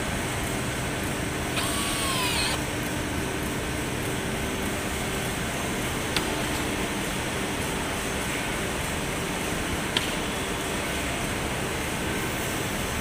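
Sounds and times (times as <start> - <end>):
workshop hum: 0.0 - 12.5
cordless drill whine: 1.5 - 2.6.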